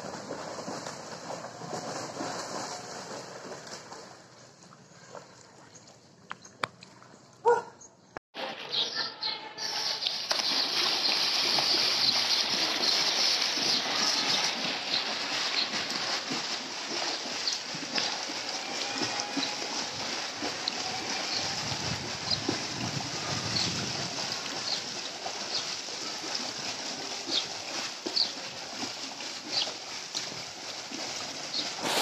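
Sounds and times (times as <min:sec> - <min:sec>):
swimmer splashing in pool: 0:00.0 - 0:05.6, 0:08.6 - 0:32.0
fins kicking splashing: 0:10.2 - 0:32.0.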